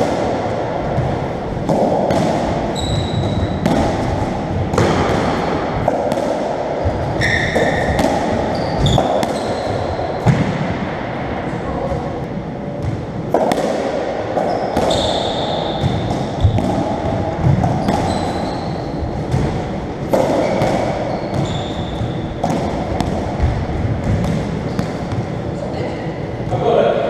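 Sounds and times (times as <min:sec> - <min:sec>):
shoes squeaking on wooden floor: 0:02.7 - 0:03.5, 0:17.8 - 0:18.9, 0:20.4 - 0:22.2.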